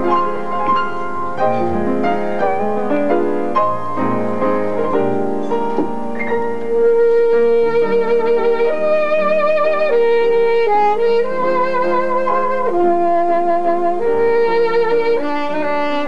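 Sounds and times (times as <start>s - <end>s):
upright piano playing: 0.0s - 16.0s
saxophone long held notes: 6.4s - 16.0s.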